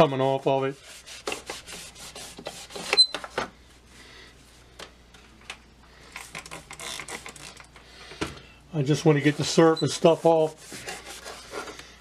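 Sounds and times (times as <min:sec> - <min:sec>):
high squeak: 0:02.9 - 0:03.2.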